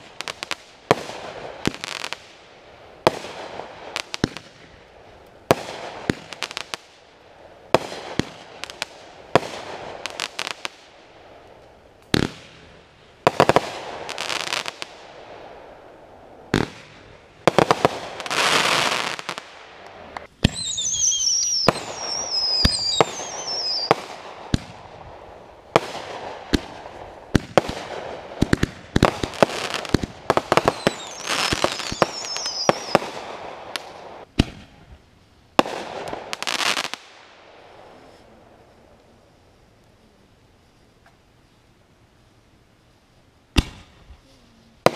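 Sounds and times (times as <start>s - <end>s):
falling firework whistles: 20.2s - 24.7s, 28.4s - 34.6s.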